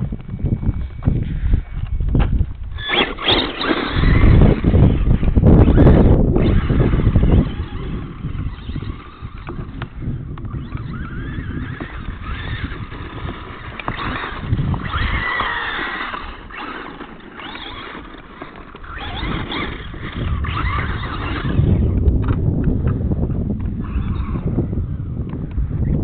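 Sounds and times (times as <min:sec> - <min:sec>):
steady low rumble: 0:00.0 - 0:02.8
toy truck motor whining: 0:02.7 - 0:22.4, 0:23.8 - 0:25.1.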